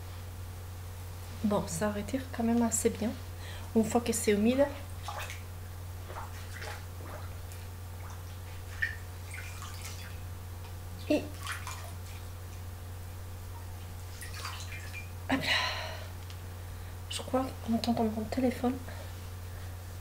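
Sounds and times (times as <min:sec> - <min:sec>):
low electrical hum: 0:00.0 - 0:20.0
water splashing and dripping: 0:05.0 - 0:05.4, 0:06.1 - 0:10.2, 0:11.0 - 0:12.6, 0:14.1 - 0:15.2.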